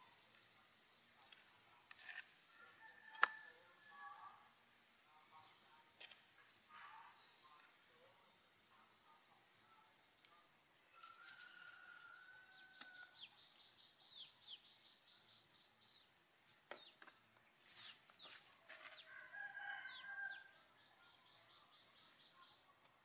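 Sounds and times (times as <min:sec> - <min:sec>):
small birds chirping: 0:00.0 - 0:23.0
rooster crowing: 0:11.0 - 0:13.1, 0:19.1 - 0:20.5.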